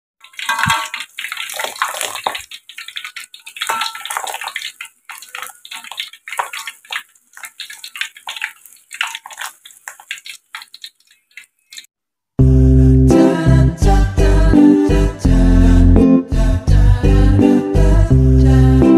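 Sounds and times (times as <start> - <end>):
batter deep-frying in oil: 0.2 - 11.9.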